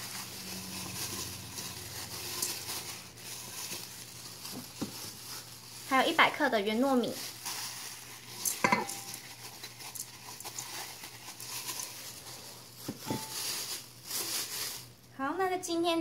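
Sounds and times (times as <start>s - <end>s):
rice grains pouring into pot: 0.0s - 6.1s, 7.2s - 14.0s
plastic glove crinkling: 0.0s - 15.2s
bowl knocking against pot: 8.6s - 9.0s.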